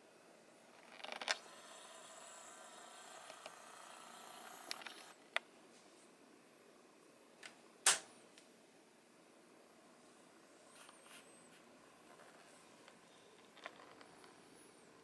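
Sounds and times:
small electric motor whirring: 0.8s - 5.2s.

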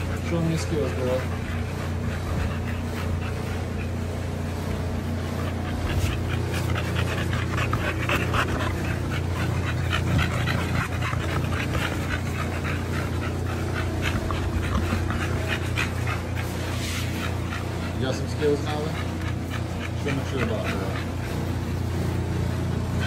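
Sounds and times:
dog panting: 0.0s - 23.0s.

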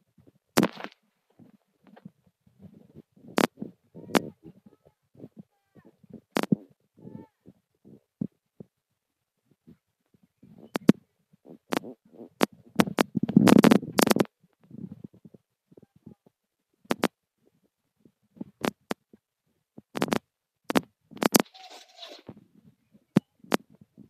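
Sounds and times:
muffled rubbing: 0.6s - 8.7s, 9.5s - 16.2s, 21.2s - 22.8s.

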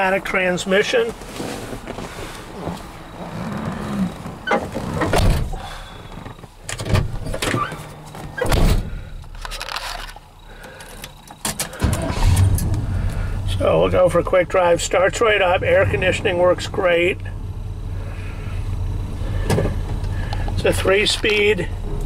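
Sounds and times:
thumps and knocks in truck cab: 4.4s - 7.5s.

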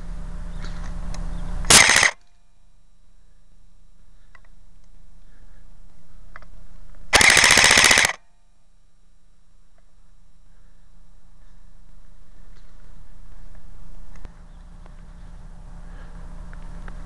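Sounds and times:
airsoft rifle firing bursts: 1.7s - 2.2s, 7.1s - 8.2s.

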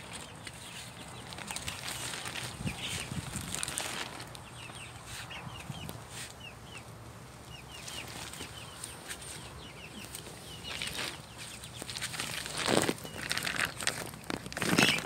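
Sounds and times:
plastic tarp rustling: 0.0s - 4.4s, 10.7s - 15.0s
baby chicks peeping: 0.0s - 15.0s.

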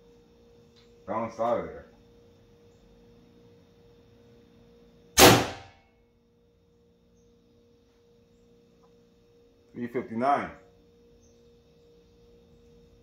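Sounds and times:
faint steady hum: 0.0s - 13.0s
air rifle shot: 5.2s - 5.8s.

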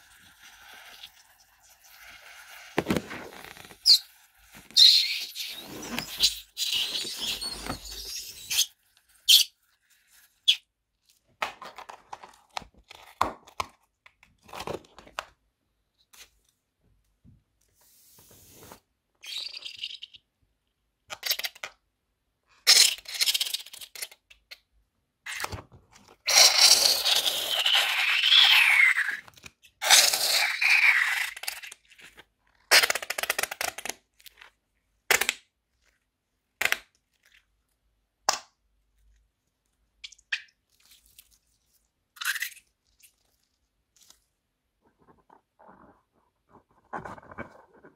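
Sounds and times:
balloon squeal: 2.6s - 9.5s.

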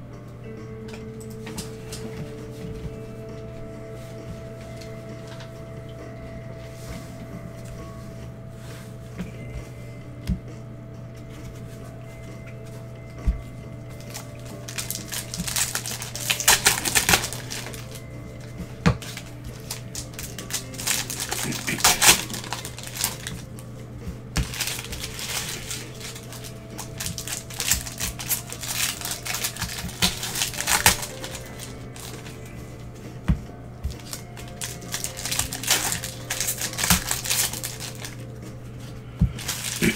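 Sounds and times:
background music: 0.0s - 39.9s
foil wrappers crinkling: 13.8s - 33.0s, 33.8s - 39.9s
cards being shuffled: 14.0s - 32.9s, 33.8s - 39.9s.

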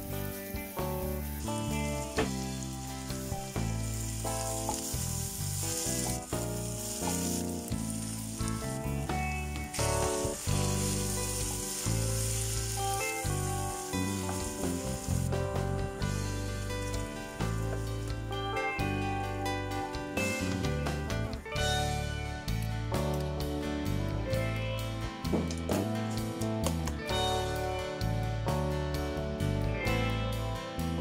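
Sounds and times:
onions sizzling in a pan: 0.0s - 22.0s
background music: 0.0s - 31.0s.

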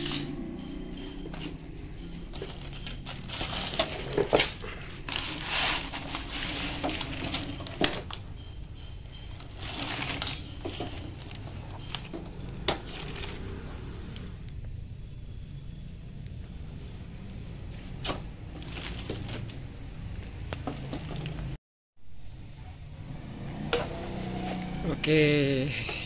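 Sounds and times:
rustling: 2.3s - 8.2s, 9.3s - 13.7s.

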